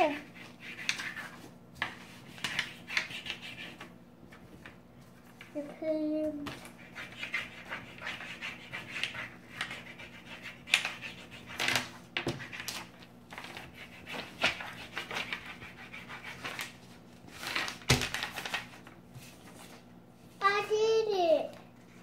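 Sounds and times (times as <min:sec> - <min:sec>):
crayon scribbling on paper: 0:00.0 - 0:03.9, 0:06.8 - 0:11.8, 0:13.6 - 0:16.6.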